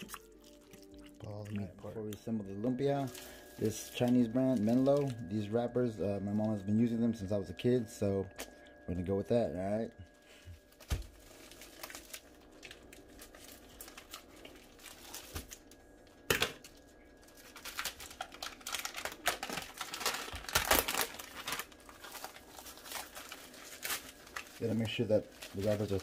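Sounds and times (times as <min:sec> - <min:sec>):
plastic packaging crinkling and tearing: 0:00.0 - 0:01.7, 0:02.6 - 0:06.9, 0:10.6 - 0:26.0.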